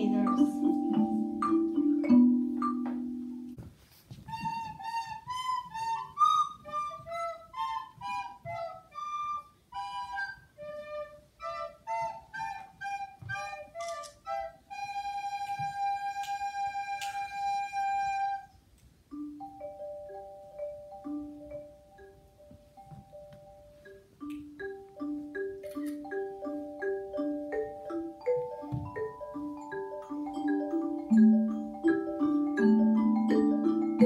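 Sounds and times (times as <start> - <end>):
wind instruments playing melody: 4.3 - 18.6.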